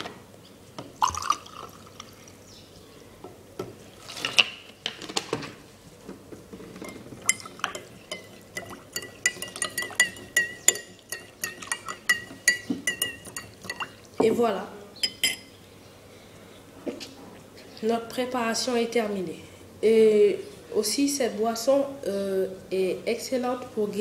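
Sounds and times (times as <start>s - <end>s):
water pouring into a glass: 1.0s - 2.2s
spoon clinking against glass: 6.8s - 14.0s, 15.0s - 15.5s.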